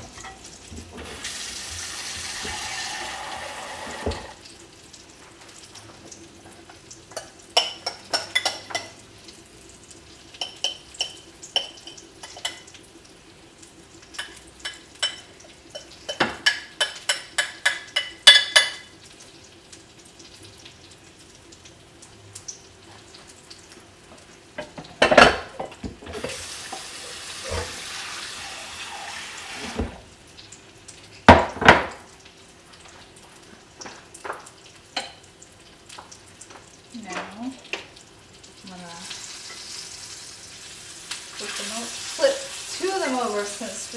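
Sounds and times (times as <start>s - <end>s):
utensils clinking on dishes: 6.6s - 9.0s, 14.2s - 18.9s
loud knocks of pans: 31.3s - 32.0s.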